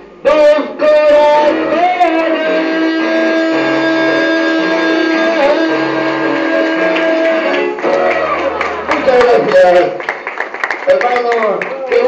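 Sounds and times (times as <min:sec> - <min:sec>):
man singing into a microphone: 0:00.2 - 0:07.5
guitar accompaniment: 0:00.3 - 0:10.0.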